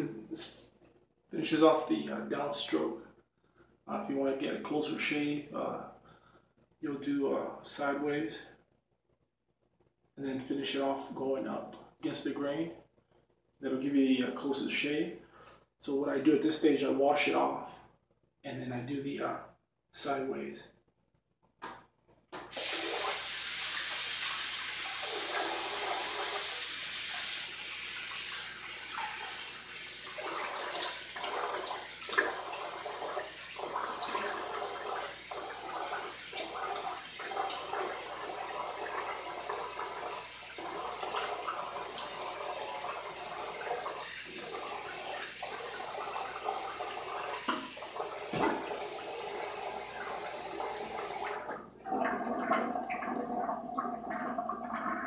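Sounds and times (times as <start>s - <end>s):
tap running into sink: 47.4s - 49.1s.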